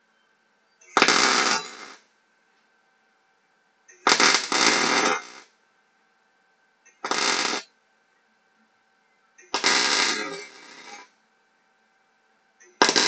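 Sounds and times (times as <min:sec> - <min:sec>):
electric welding arc: 0:00.9 - 0:02.1, 0:03.9 - 0:05.5, 0:06.9 - 0:07.7, 0:09.4 - 0:11.1, 0:12.7 - 0:13.0.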